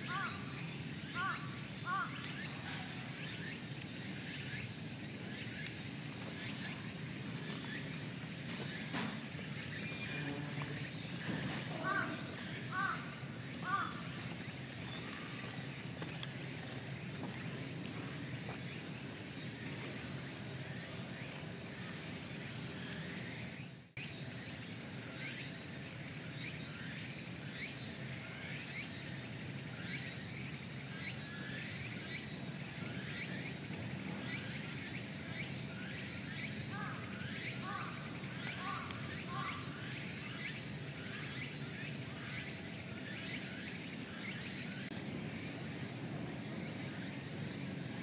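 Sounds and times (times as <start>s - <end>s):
outdoor background noise: 0.0s - 48.0s.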